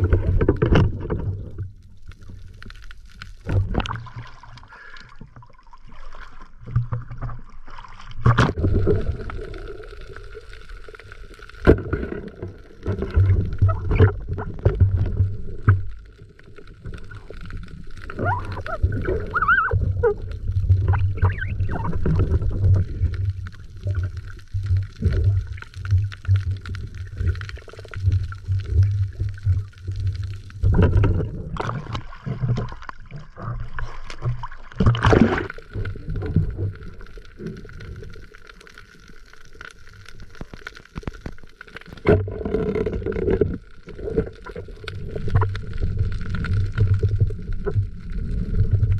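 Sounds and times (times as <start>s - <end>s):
water sloshing and gurgling: 0.0s - 48.9s
squeaky glides: 20.9s - 22.0s.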